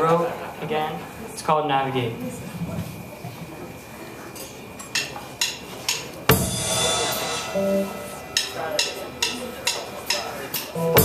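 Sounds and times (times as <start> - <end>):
short bass notes: 6.3 - 9.6
cymbal crash: 6.3 - 11.0
rock band playing: 6.3 - 11.0.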